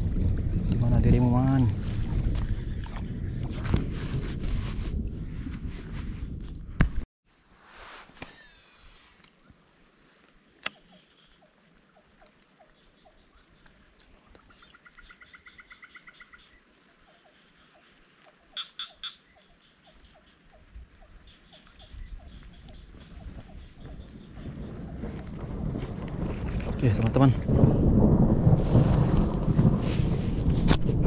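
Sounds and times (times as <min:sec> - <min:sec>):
high insect drone: 0:08.3 - 0:28.3
rapid pulsed frog calls: 0:10.4 - 0:25.7
frogs croaking: 0:10.4 - 0:26.5.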